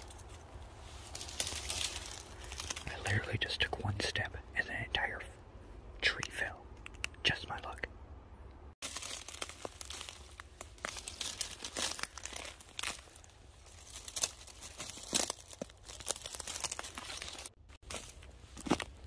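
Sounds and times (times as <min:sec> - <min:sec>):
footsteps crunching through dry leaves: 0:00.0 - 0:03.2, 0:08.8 - 0:19.0.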